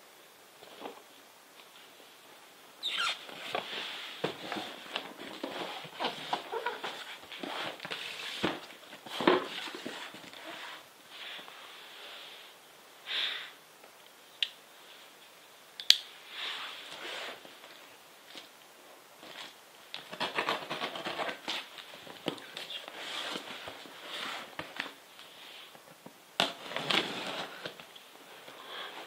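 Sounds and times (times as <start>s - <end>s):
plastic wrap rustling and crinkling: 2.8s - 11.7s, 19.2s - 29.0s.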